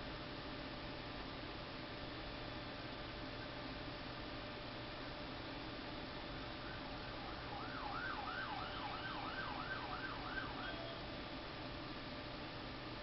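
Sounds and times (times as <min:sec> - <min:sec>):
emergency vehicle siren: 0:06.6 - 0:11.4.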